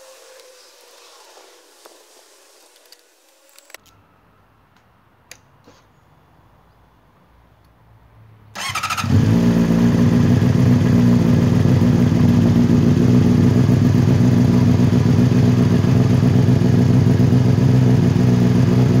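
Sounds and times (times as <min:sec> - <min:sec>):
electric starter cranking: 0:08.6 - 0:09.2
motorcycle engine idling: 0:08.6 - 0:19.0.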